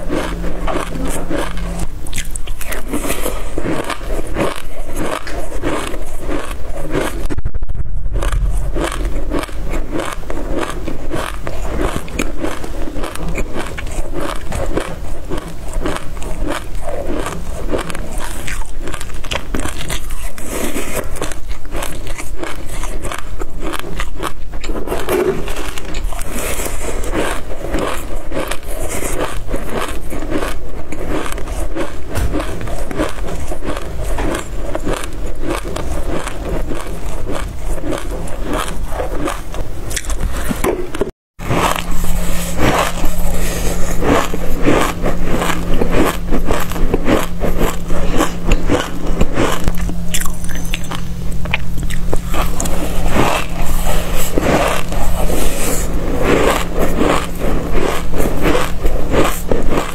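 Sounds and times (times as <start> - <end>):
plastic spoon scraping metal tray: 0.0 - 7.4, 24.6 - 59.9
chewing crunchy seeds: 0.0 - 7.5, 8.1 - 59.9.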